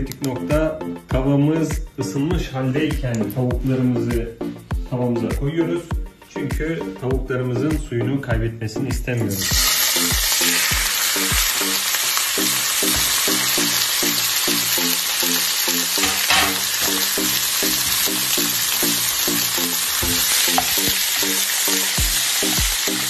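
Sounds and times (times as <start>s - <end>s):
background music with beat: 0.0s - 23.0s
chicken sizzling in frying pan: 9.3s - 23.0s.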